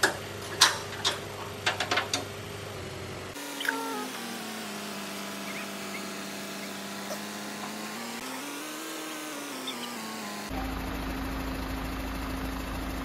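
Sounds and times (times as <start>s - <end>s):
truck engine idling: 0.1s - 8.2s, 10.5s - 13.0s
mechanical whine: 3.4s - 11.1s.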